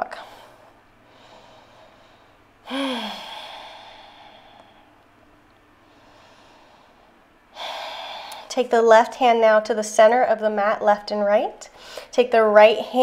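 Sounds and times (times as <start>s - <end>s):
woman sighing: 2.6s - 4.7s.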